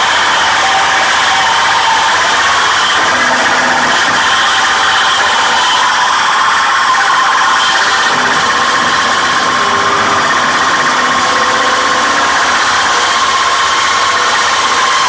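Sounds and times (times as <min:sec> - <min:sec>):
harsh noise music: 0:00.0 - 0:15.0
steady high-pitched tone: 0:03.0 - 0:15.0.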